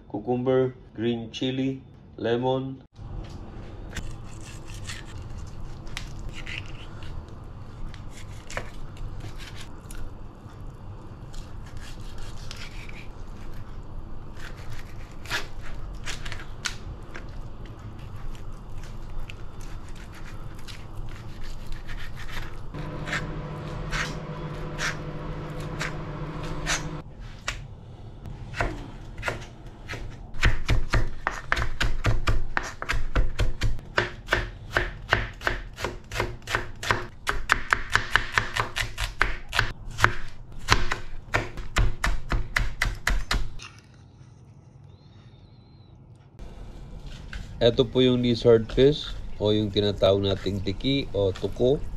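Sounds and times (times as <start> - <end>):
low hum: 22.7 - 29.7
knife chopping on plastic board: 28.6 - 43.5.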